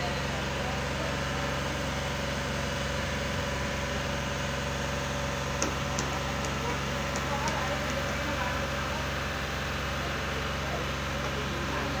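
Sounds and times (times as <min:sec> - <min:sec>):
diesel engine idling hum: 0:00.0 - 0:12.0.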